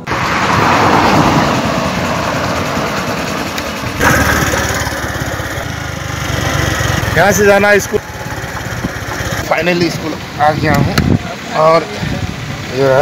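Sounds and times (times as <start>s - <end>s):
small motorbike engine running: 1.2s - 10.8s.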